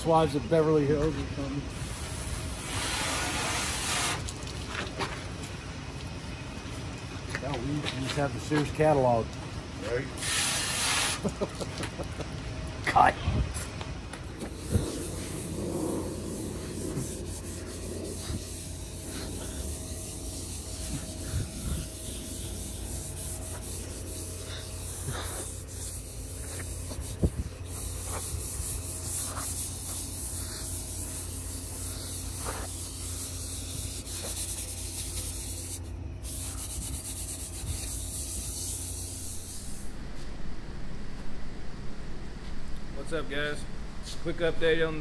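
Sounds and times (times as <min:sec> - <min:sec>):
low hum: 0:11.6 - 0:45.0
rubbing and scraping: 0:14.3 - 0:40.3.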